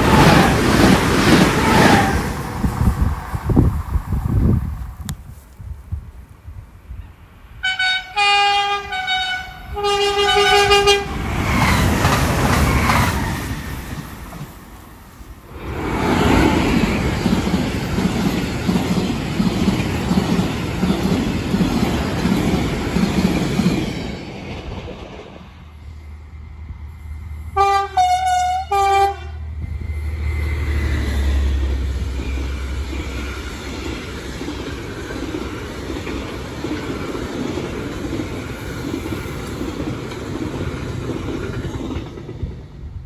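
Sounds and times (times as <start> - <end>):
freight train rumbling: 0.0 - 43.0
train passing at speed: 0.0 - 43.0
two-tone train horn: 7.6 - 11.2, 27.5 - 29.6.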